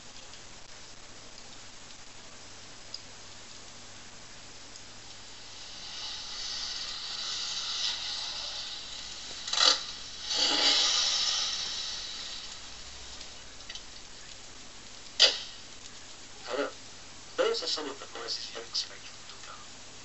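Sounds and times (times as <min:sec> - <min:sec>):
hissing car sound effect: 0:05.1 - 0:13.4
sharp burst: 0:05.2 - 0:13.4, 0:15.2 - 0:15.8.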